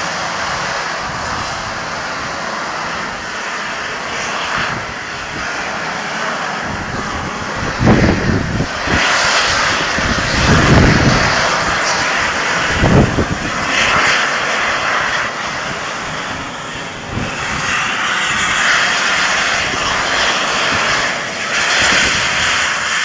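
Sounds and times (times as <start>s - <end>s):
deep exhaust blasts: 0.0s - 22.9s
steam locomotive hissing: 0.0s - 23.0s.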